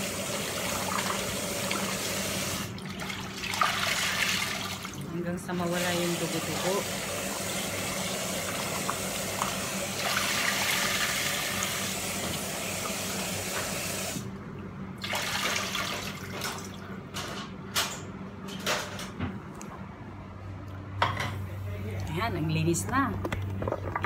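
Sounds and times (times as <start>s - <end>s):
tap water running: 0.0s - 14.3s, 15.0s - 16.8s.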